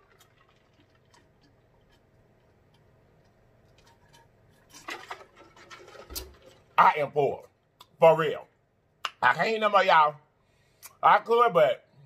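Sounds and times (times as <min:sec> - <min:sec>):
person gulping and swallowing: 0:00.0 - 0:02.7.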